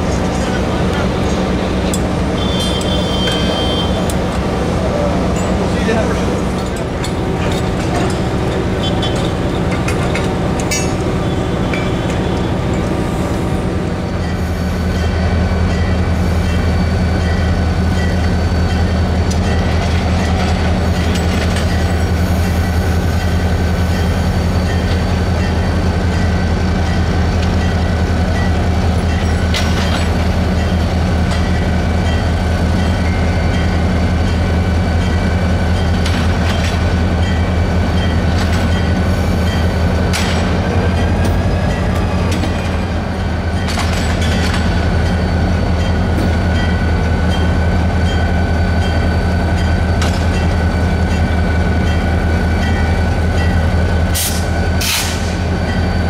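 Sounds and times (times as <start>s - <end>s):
locomotive engine drone: 0.0s - 56.0s.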